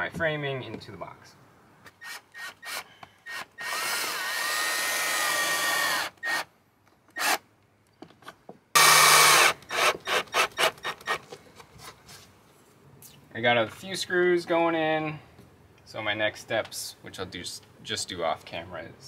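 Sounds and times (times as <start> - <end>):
drill driving screws: 2.0 - 6.5, 7.1 - 7.4, 8.8 - 11.2.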